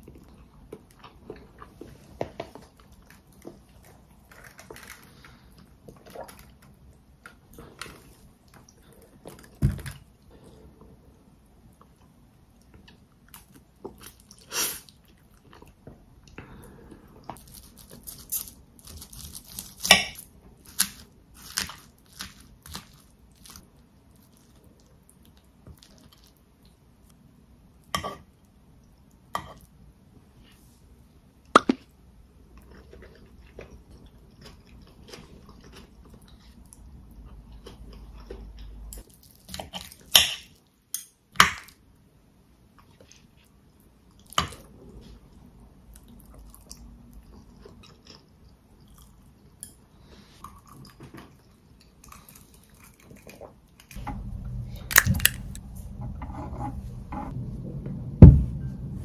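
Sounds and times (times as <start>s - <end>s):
crunching bites and chewing: 54.9s - 55.6s.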